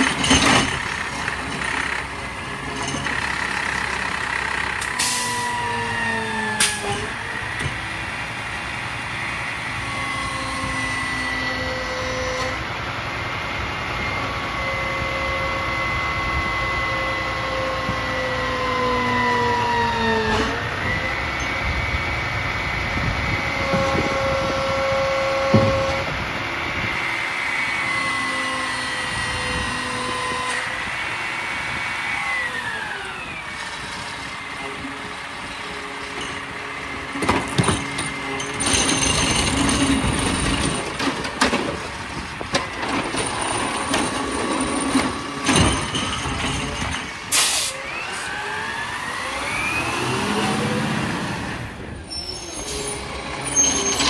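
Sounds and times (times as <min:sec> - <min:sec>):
metal clanks and bangs: 0:00.0 - 0:03.8, 0:35.5 - 0:47.5
sharp hydraulic hiss: 0:47.3 - 0:47.8
truck engine revving: 0:47.7 - 0:52.0.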